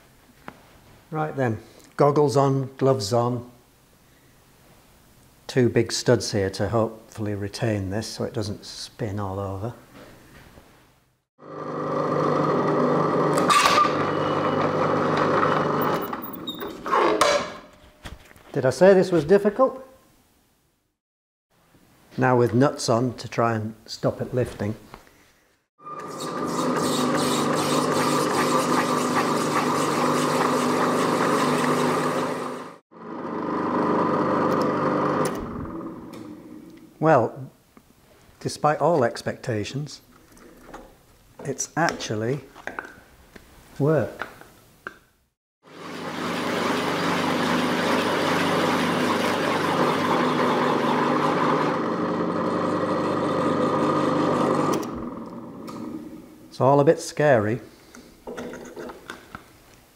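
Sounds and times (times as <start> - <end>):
drill motor hum: 25.8 - 36.7, 45.7 - 56.1
blades scratching through plastic: 26.1 - 31.8.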